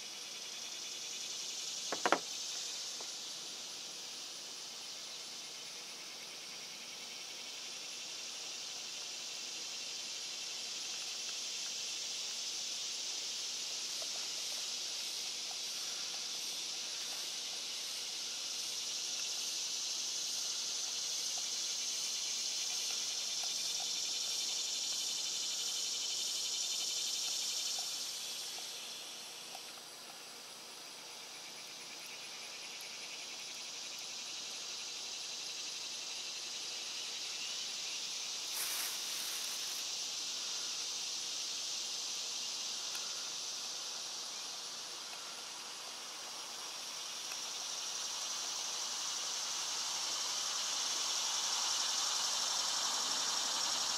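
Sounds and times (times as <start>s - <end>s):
high-pitched insect chorus: 0.0s - 53.9s.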